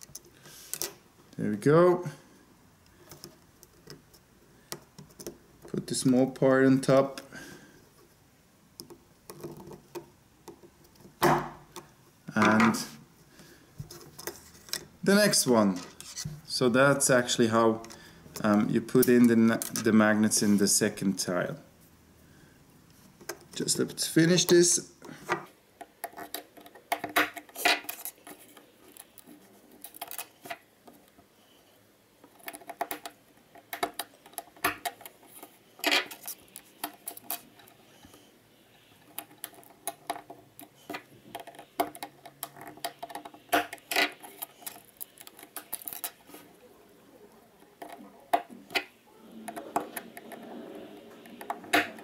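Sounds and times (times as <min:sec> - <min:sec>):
plastic parts clicking and tapping: 0:02.8 - 0:05.8, 0:25.0 - 0:31.2, 0:32.2 - 0:38.2, 0:39.0 - 0:46.5, 0:47.6 - 0:48.9.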